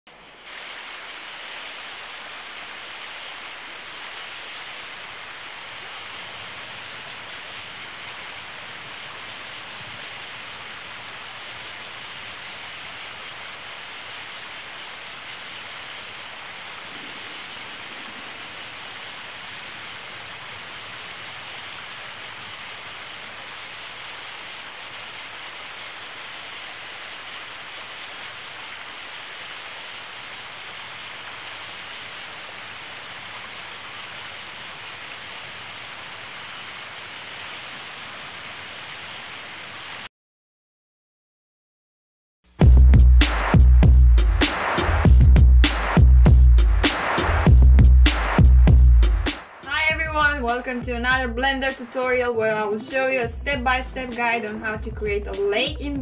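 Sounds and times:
running water rushing: 0.1 - 40.1, 43.2 - 50.9.

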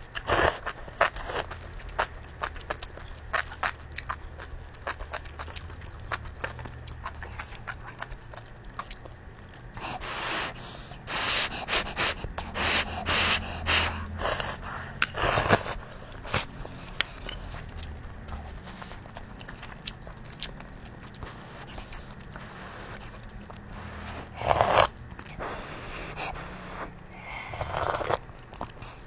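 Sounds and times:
person slurping noodles: 9.9 - 16.5, 23.8 - 28.2.

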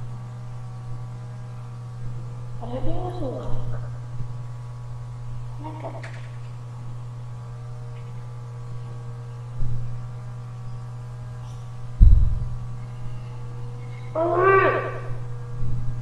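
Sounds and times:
low electrical hum: 0.0 - 16.0
low thump: 12.0 - 12.6.

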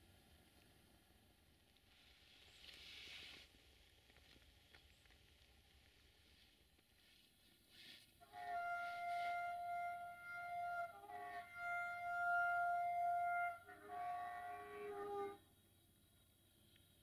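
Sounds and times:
two-tone locomotive horn: 8.2 - 15.5.

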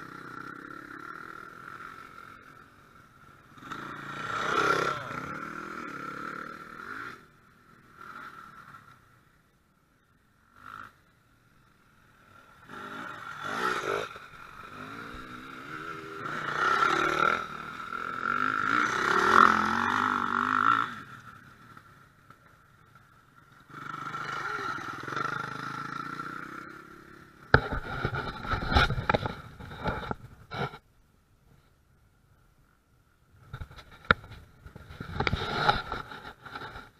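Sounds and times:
dirt bike engines passing: 0.0 - 30.8
sharp knocks and clatter: 27.5 - 30.8.

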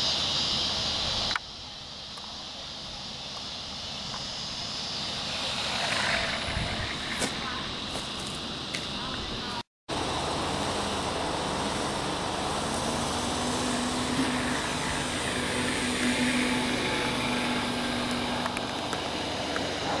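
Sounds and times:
model plane motor humming: 10.0 - 20.0.

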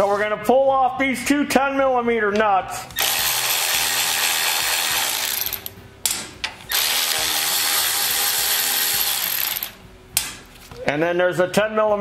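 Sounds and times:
electric ratchet spinning: 3.0 - 5.8, 6.7 - 9.8.

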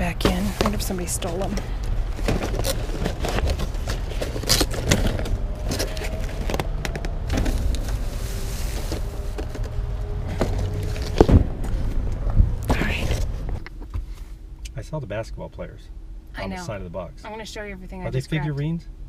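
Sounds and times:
plastic trash bags rustling: 0.0 - 12.0
low rumble: 0.0 - 19.0
cardboard boxes scraping and knocking: 0.2 - 6.7.

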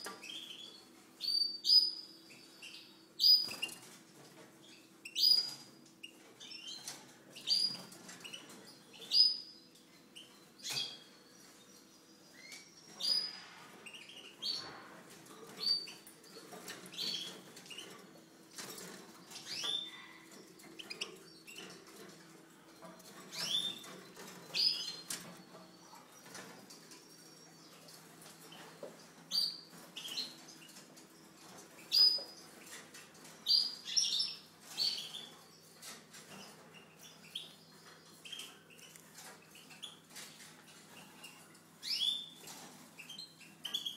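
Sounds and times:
finches chirping: 22.9 - 43.9.

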